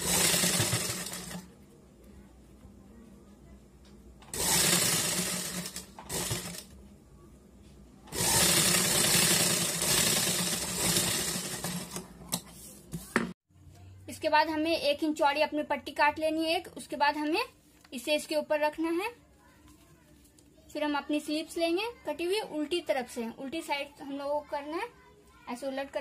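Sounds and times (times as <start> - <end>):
sewing machine stitching: 0.0 - 1.5, 4.3 - 6.7, 8.1 - 12.1.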